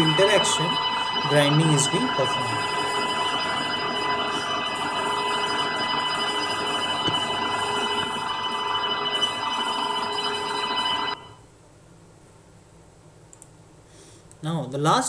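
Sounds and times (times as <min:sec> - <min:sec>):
grinding machine whine: 0:00.0 - 0:11.4.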